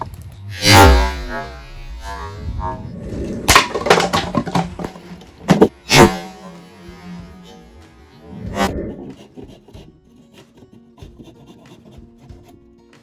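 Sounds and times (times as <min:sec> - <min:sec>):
projectile hitting plastic bottle: 0:03.4 - 0:06.3.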